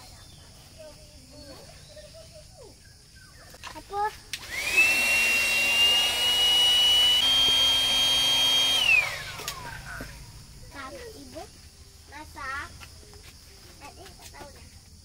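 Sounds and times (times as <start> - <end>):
electric air pump whining: 4.4 - 10.5.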